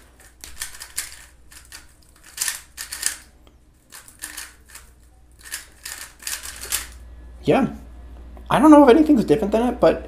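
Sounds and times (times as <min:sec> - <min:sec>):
plastic puzzle cube clacking: 0:00.2 - 0:03.3, 0:03.9 - 0:07.0.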